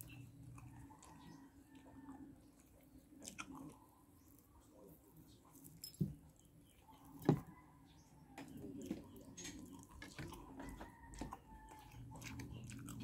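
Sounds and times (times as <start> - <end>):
wet eating sounds: 0.0 - 7.3, 8.4 - 13.0.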